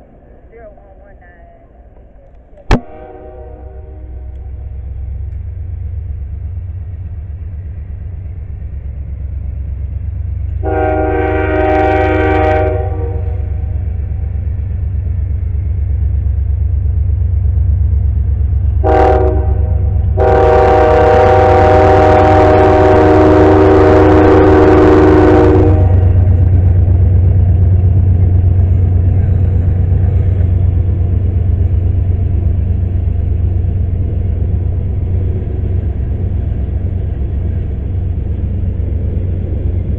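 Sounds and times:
diesel locomotive rumble: 0.0 - 39.9
locomotive air horn: 2.9 - 4.4, 10.6 - 13.7, 18.8 - 26.2.

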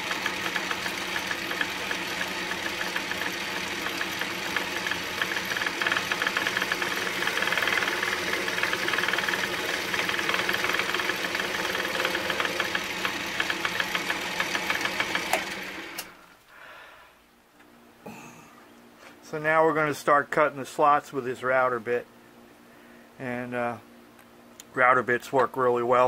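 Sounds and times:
tool ticking through metal cut: 0.0 - 16.1
metal lathe humming: 0.0 - 16.2.

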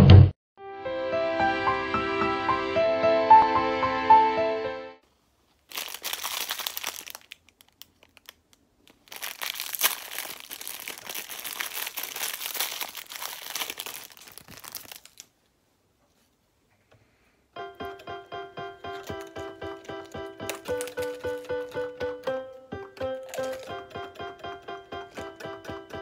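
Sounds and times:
plastic wrapper crinkling: 5.5 - 15.4, 18.9 - 22.3, 23.2 - 24.2.

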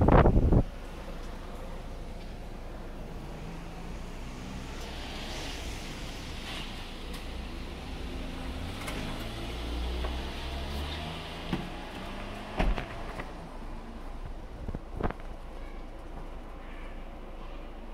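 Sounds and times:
vehicle engine passing: 2.7 - 13.8.

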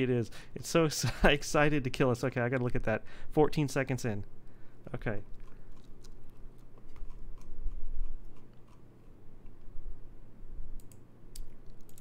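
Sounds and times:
computer mouse clicking: 10.8 - 12.0.

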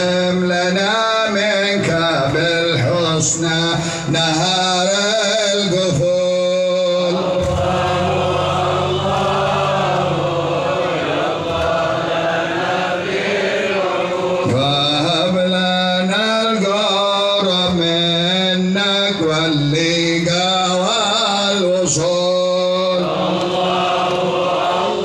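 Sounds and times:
devotional chanting: 0.0 - 25.0
steady low drone note: 7.3 - 11.6.

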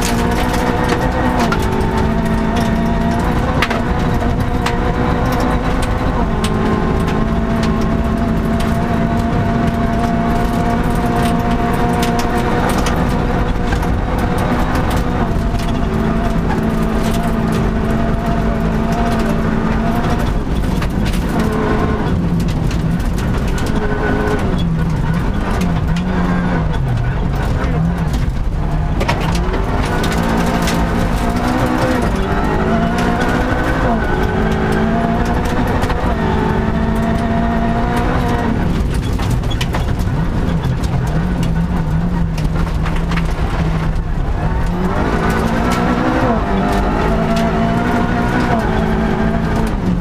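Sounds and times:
car engine at full throttle: 0.0 - 50.0.

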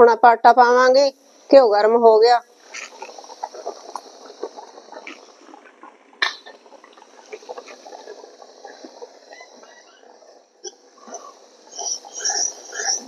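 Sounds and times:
frying sizzle with crackles: 1.1 - 13.0.

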